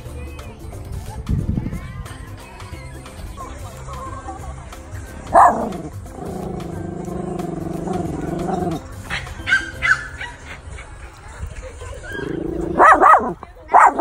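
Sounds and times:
small dog barking: 0:05.3 - 0:05.9, 0:12.6 - 0:14.0.

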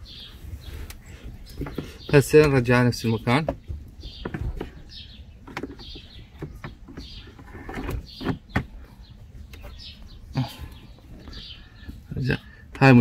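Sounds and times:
plastic frame knocking and scraping: 0:01.4 - 0:08.9.

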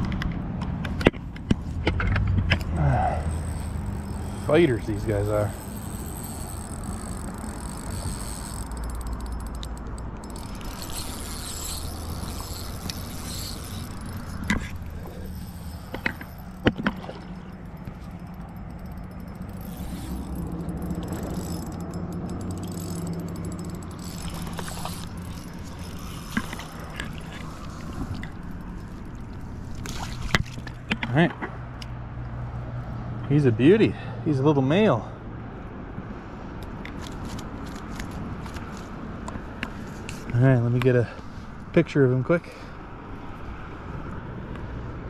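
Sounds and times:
fishing reel whirring: 0:02.8 - 0:30.3
fishing reel clicks: 0:03.2 - 0:29.4.

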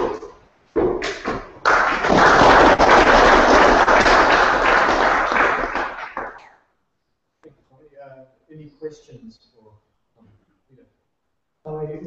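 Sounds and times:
audience applauding: 0:01.2 - 0:06.6.

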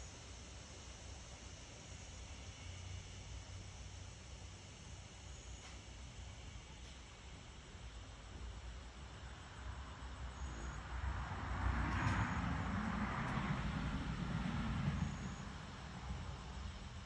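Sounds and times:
vehicle passing with tyre hiss: 0:09.2 - 0:17.0.

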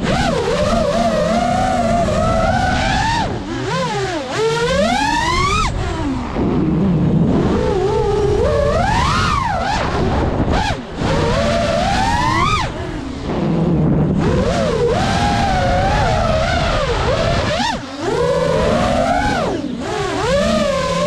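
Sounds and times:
drone motors whining: 0:00.0 - 0:21.0.

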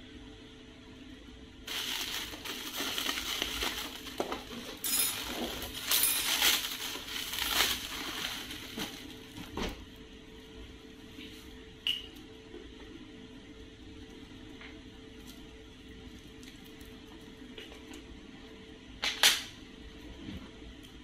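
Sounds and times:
plastic packaging crinkling: 0:01.7 - 0:09.6.

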